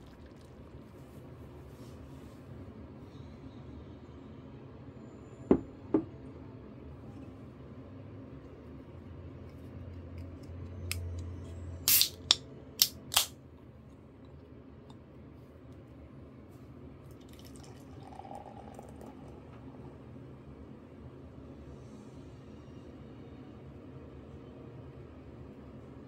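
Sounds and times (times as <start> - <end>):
beer pouring into glass: 0.0 - 1.0, 17.1 - 19.9
beer can cracking open: 11.9 - 13.3.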